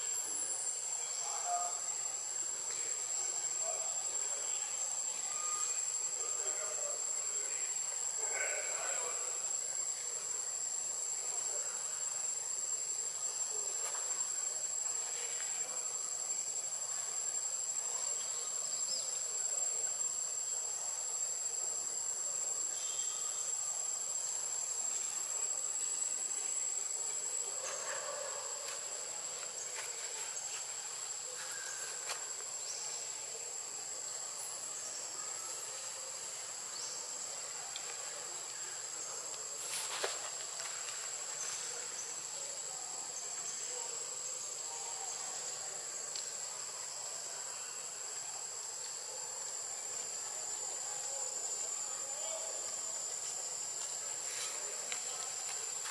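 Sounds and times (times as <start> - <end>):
insects droning: 0.0 - 55.9.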